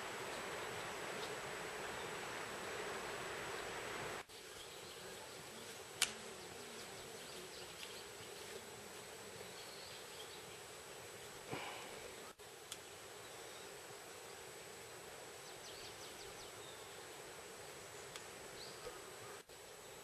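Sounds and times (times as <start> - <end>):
faint outdoor hiss: 0.0 - 20.0.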